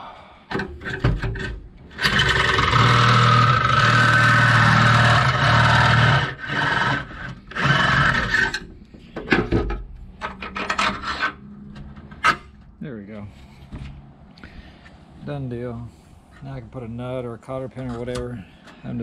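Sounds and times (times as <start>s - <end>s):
cordless drill boring steel: 1.9s - 8.6s.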